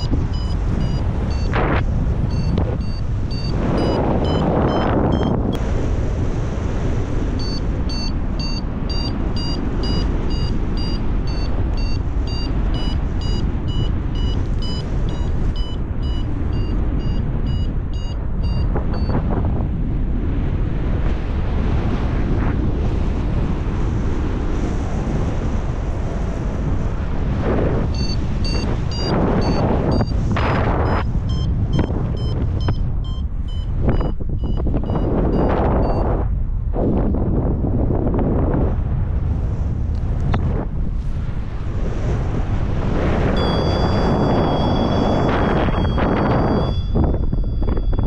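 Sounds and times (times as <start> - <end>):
variometer beeping: 0.0 - 5.6, 7.4 - 19.2, 27.8 - 36.1, 43.2 - 48.0
wind noise on microphone: 0.0 - 48.0.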